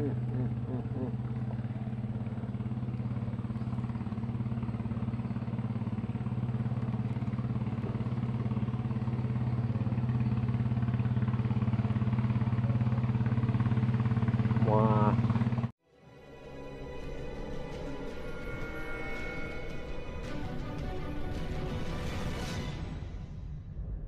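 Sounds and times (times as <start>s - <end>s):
small engine running: 0.0s - 15.7s.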